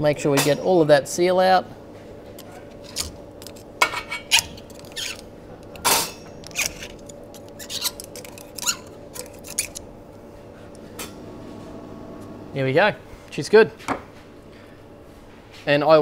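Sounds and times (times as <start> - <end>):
metal pick clicking and scraping: 2.9 - 9.9.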